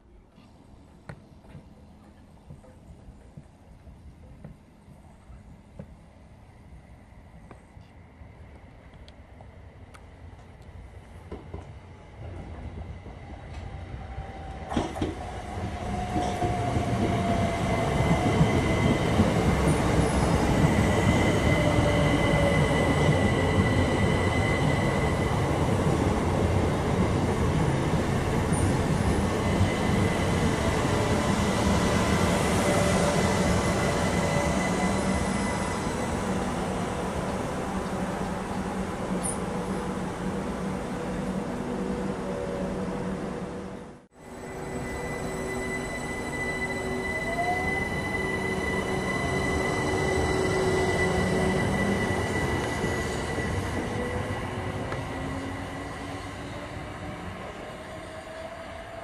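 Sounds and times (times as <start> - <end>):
train wheels rumbling on rail: 10.3 - 41.8
high squeal: 32.6 - 36.6, 44.3 - 56.8.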